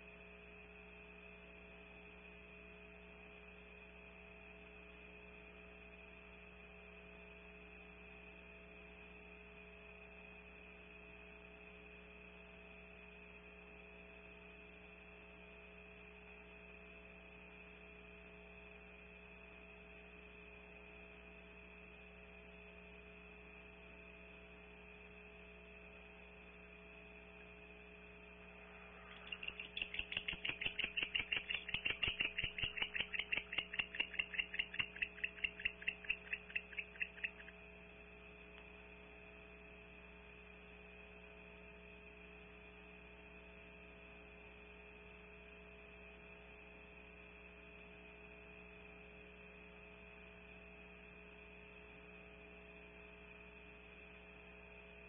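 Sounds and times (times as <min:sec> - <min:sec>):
steady electrical hum: 0:00.0 - 0:55.0
pulsing high-pitched owl call: 0:28.6 - 0:37.6.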